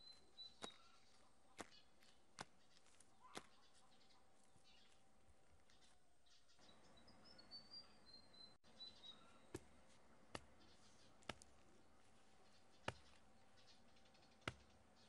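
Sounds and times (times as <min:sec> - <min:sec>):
faint high bird chirps: 0:00.0 - 0:05.0, 0:05.6 - 0:09.6.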